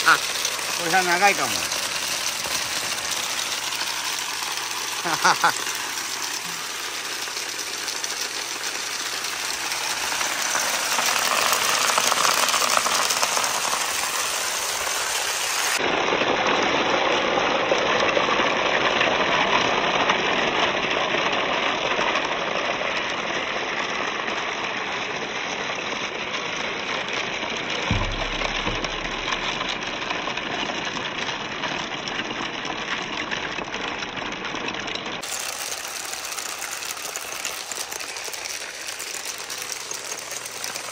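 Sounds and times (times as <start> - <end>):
water rushing along wooden chute: 0.0 - 15.9, 26.7 - 31.4, 35.2 - 40.9
low thump: 27.9 - 30.3.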